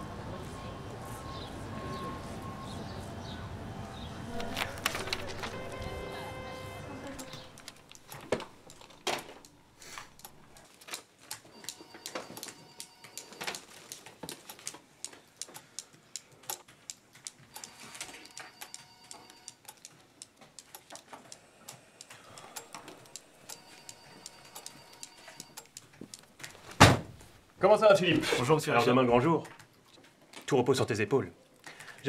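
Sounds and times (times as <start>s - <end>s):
laptop keyboard typing: 4.3s - 26.6s
loud thump: 26.8s - 27.2s.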